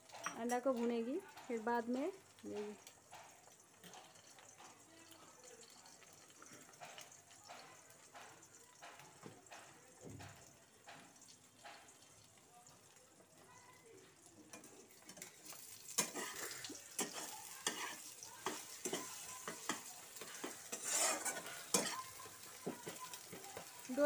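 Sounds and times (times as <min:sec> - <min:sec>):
eggs sizzling in a pan: 0:00.0 - 0:24.0
metal spatula scraping a pan: 0:14.5 - 0:23.8.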